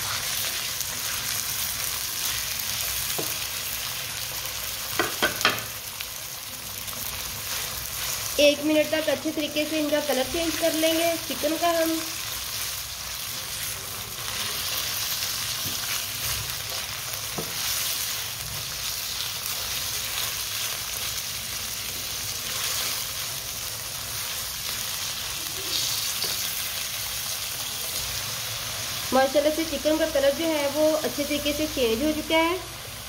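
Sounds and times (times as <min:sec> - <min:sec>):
chicken sizzling in a wok: 0:00.0 - 0:33.0.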